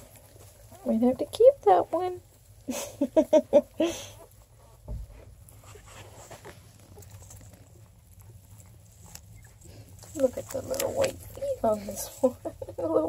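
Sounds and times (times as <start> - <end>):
shuffling in straw: 0.0 - 12.6
soft thump: 4.8 - 5.3
puppies squeaking: 9.1 - 9.7.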